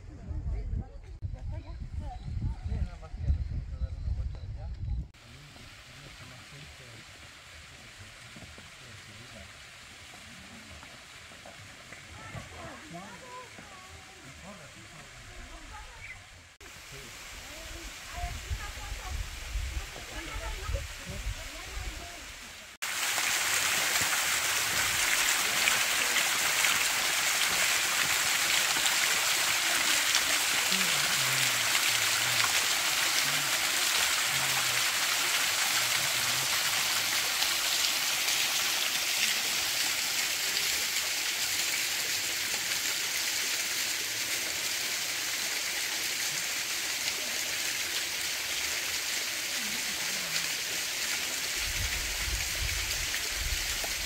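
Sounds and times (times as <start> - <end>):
river water rushing: 21.5 - 51.5.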